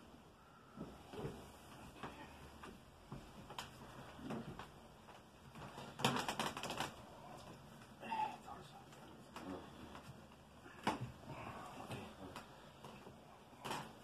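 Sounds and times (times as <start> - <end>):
chair clicks and creaks: 0.8 - 7.6, 11.9 - 14.0.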